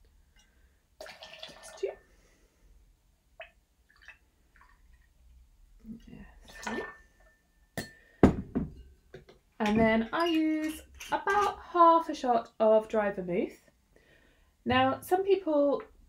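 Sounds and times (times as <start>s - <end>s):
liquid pouring and splashing: 1.0s - 2.0s, 3.4s - 5.2s.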